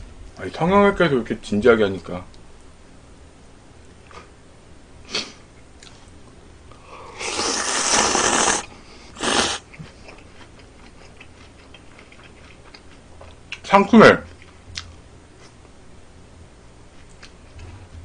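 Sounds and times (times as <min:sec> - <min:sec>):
noodles slurped: 0:07.2 - 0:09.7.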